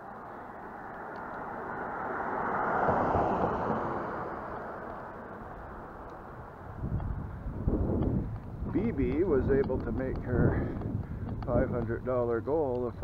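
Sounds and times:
car driving past: 0.0 - 6.8.

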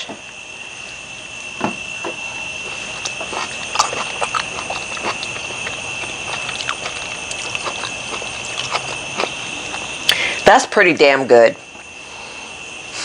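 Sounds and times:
mouth chewing wetly: 2.2 - 10.2.

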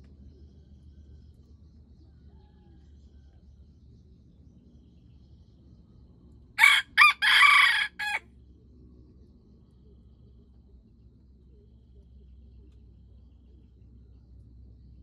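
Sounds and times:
rooster crowing: 6.6 - 8.2.

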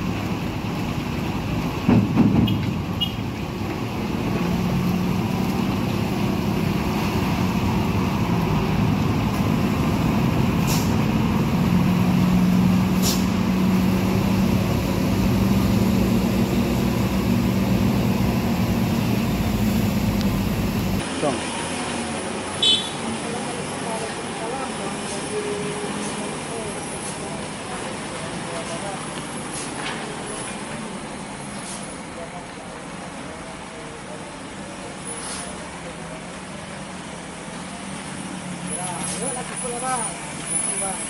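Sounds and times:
diesel truck engine running: 0.0 - 22.3
traffic passing on wet road: 0.0 - 41.0
loud knock: 1.9 - 2.7
short sharp hisses: 10.6 - 11.0, 12.9 - 13.4, 35.1 - 35.6.

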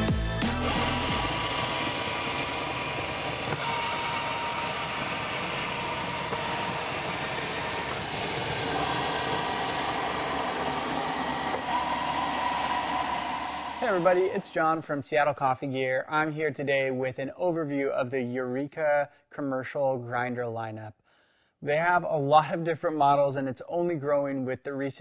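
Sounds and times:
coffee grinder whirring: 0.5 - 14.5.

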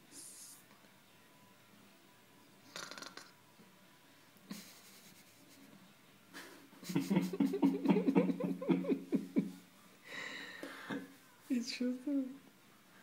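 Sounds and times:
person laughing: 4.5 - 5.5, 6.4 - 9.6
breathy exhale: 10.0 - 11.0.

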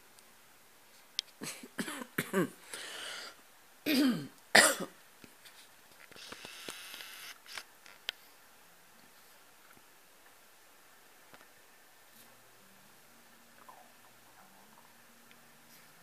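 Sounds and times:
cat coughing: 3.9 - 4.9.

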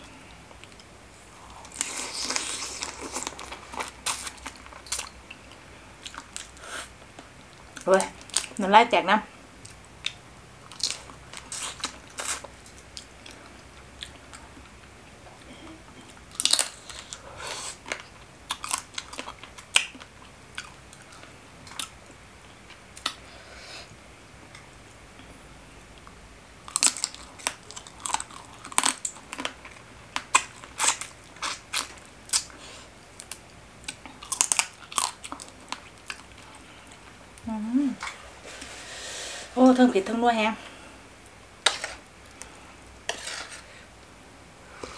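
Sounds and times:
person biting and chewing: 33.2 - 36.3.

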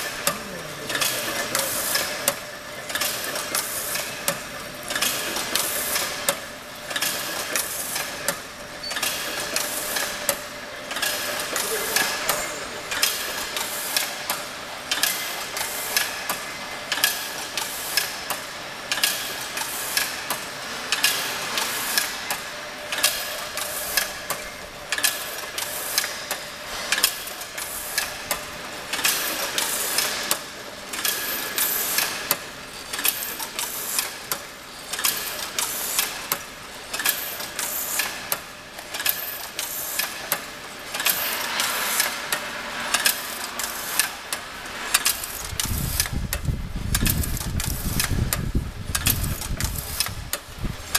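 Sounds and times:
weaving machine clattering: 0.0 - 46.2.

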